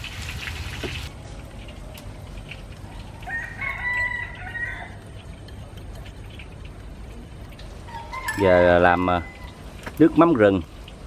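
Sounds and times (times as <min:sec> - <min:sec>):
rooster crowing: 0:03.1 - 0:05.1, 0:07.9 - 0:09.6.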